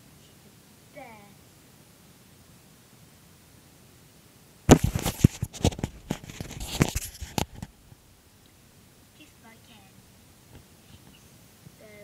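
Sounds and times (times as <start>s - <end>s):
microphone handling noise: 4.7s - 8.0s.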